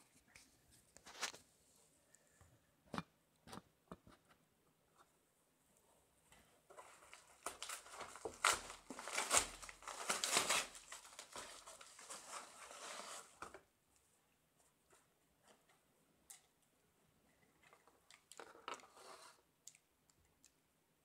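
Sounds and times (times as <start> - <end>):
paper mailer crinkling and tearing: 6.8 - 13.4.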